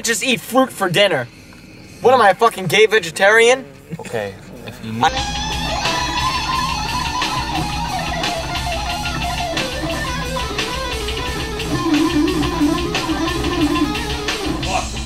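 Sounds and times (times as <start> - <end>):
electric guitar lead line: 5.0 - 15.0.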